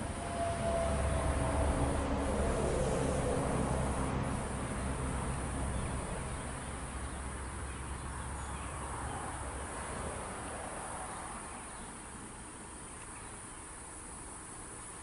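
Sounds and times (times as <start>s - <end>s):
railcar engine rumble: 0.0s - 9.6s
insects calling: 0.0s - 15.0s.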